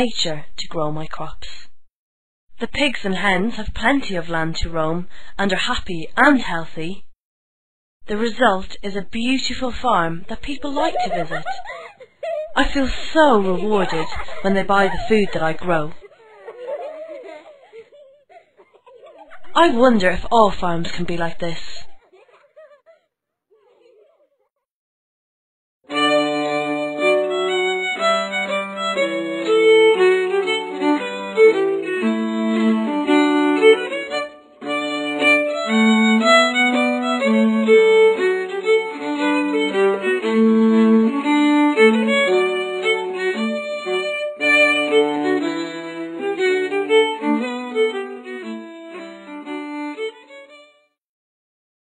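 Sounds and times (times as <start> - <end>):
lively instrumental music: 25.9 - 50.6.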